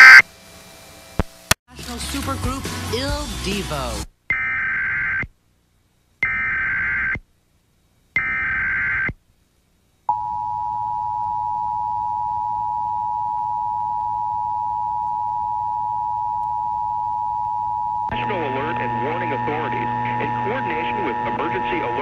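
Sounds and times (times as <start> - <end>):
screechy digital data bursts: 6.2 - 7.2
steady dual-tone alert buzz: 15.1 - 22.0.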